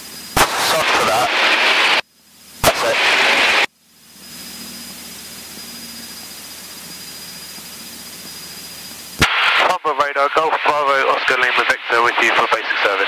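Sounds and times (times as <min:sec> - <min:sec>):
aircraft engine drone: 0:00.0 - 0:13.0
radio click and hiss: 0:00.4 - 0:02.0, 0:02.6 - 0:03.7, 0:09.2 - 0:13.0.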